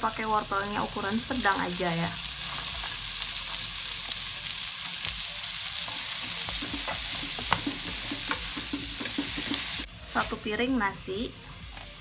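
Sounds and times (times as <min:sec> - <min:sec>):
vegetables sizzling in hot oil: 0:00.0 - 0:12.0
spatula scraping and tapping pan: 0:05.9 - 0:09.9.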